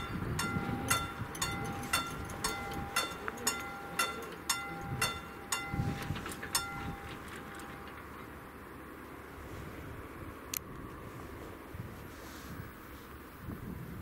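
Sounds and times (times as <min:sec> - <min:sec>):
level crossing warning bell: 0:00.0 - 0:08.1.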